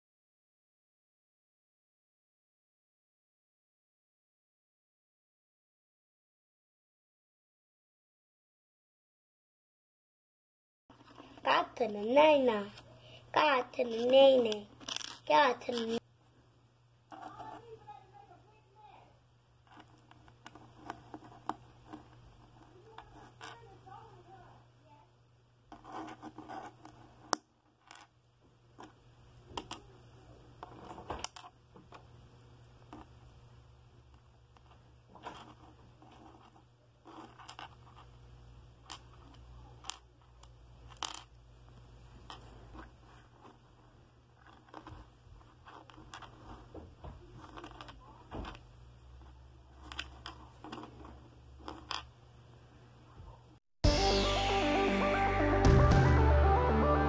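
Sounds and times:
faint low hum: 0:10.9 - 0:53.6
plastic bricks clicking on tabletop: 0:14.8 - 0:16.0, 0:29.5 - 0:29.9, 0:38.8 - 0:41.4, 0:49.8 - 0:52.1.

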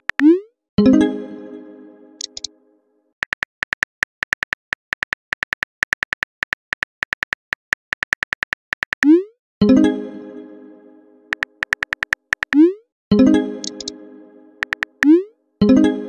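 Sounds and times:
phone keyboard key clicks: 0:02.2 - 0:02.5, 0:11.3 - 0:12.6, 0:14.6 - 0:15.1.

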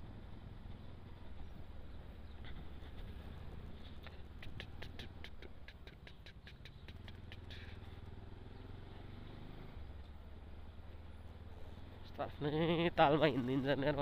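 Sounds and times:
motorcycle engine running: 0:00.0 - 0:14.0
fast even ticking: 0:04.0 - 0:07.8.

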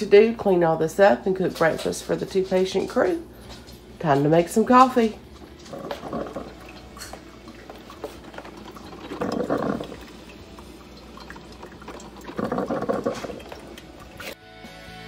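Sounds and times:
coffee maker water bubbling: 0:00.0 - 0:14.4.

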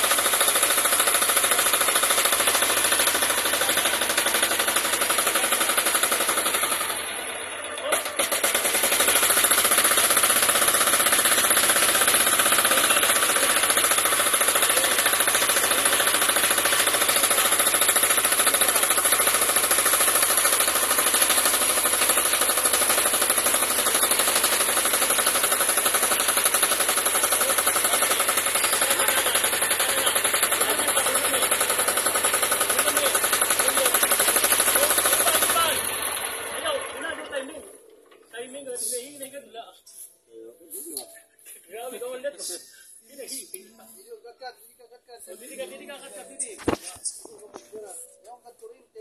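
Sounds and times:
diesel generator knocking: 0:08.2 - 0:36.6.

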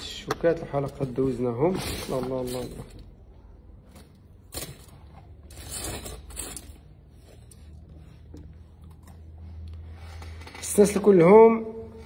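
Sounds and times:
jewellery rustling and scraping: 0:00.6 - 0:11.2.

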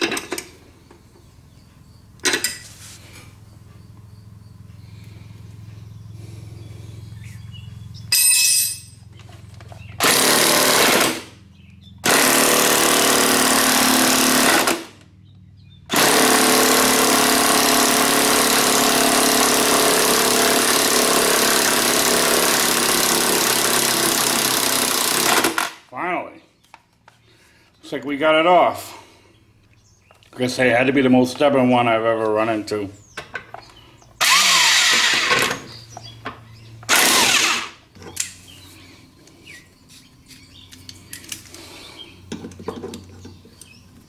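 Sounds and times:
impact wrench hammering: 0:08.1 - 0:09.0.

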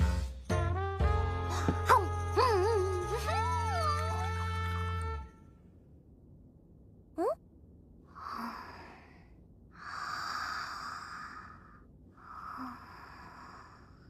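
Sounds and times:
girl sleep breathing: 0:08.1 - 0:14.0.

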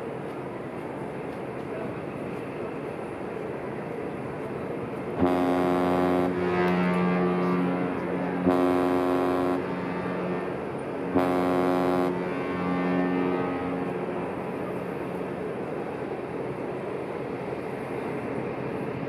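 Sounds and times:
ship's horn deep blast: 0:05.0 - 0:16.4.

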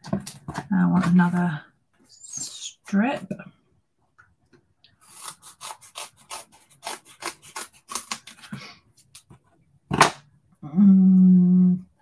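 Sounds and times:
scissors snipping foam: 0:05.0 - 0:08.5.

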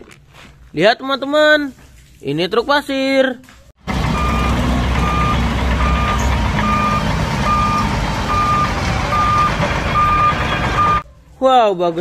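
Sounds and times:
diesel engine running: 0:03.8 - 0:11.0
reverse alarm beeping: 0:04.1 - 0:11.0.

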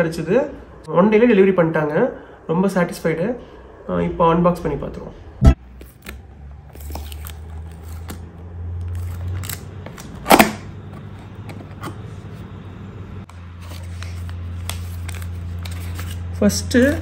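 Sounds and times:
steady low hum: 0:08.0 - 0:17.0.

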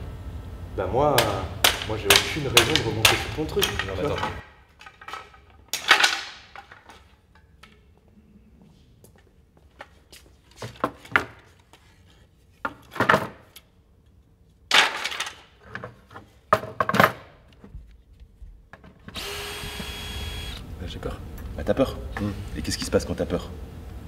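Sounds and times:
wooden battens knocking: 0:01.2 - 0:07.0.

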